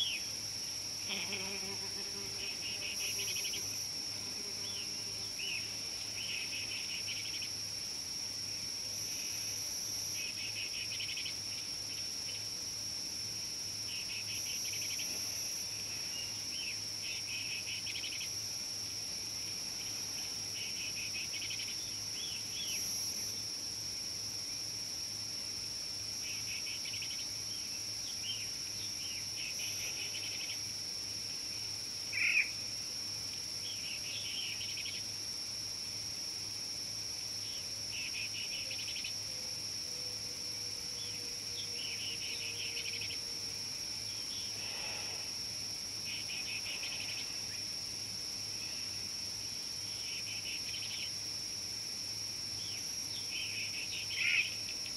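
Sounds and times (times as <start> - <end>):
high-pitched insect drone: 37.4 - 54.9.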